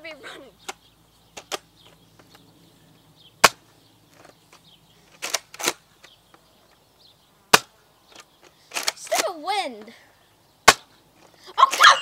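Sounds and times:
foam dart blaster snapping: 7.5s - 7.7s, 10.6s - 10.9s.

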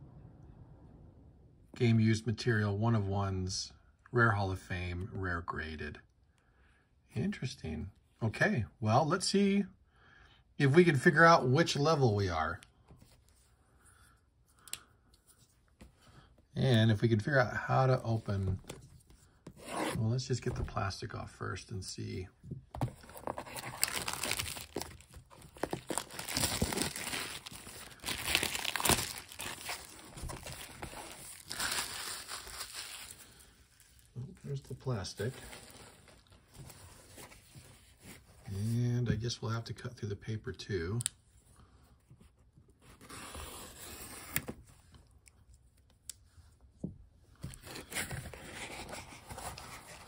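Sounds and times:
shrink wrap crinkling: 23.2s - 34.2s.

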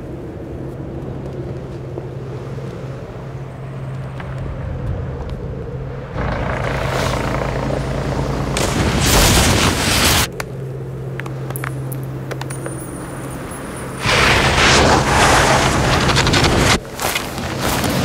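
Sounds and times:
steady low drone: 0.0s - 18.0s
rushing whoosh: 14.0s - 16.8s.

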